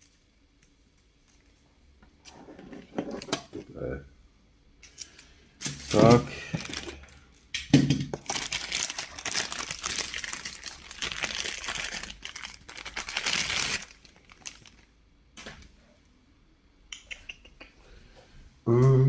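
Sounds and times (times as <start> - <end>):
plastic bag crinkling: 4.8 - 7.4, 8.1 - 15.0.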